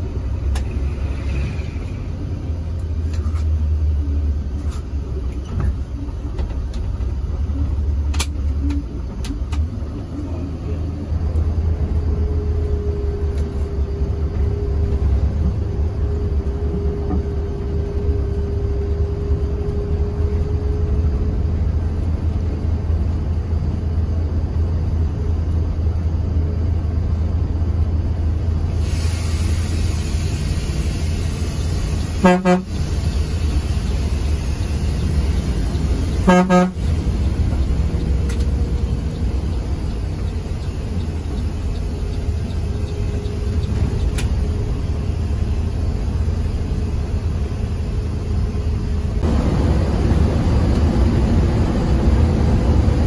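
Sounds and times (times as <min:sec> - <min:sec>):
coach engine rumble: 0:00.0 - 0:53.0
hiss: 0:28.7 - 0:36.2
vehicle horn toots: 0:32.2 - 0:32.8, 0:36.2 - 0:36.9.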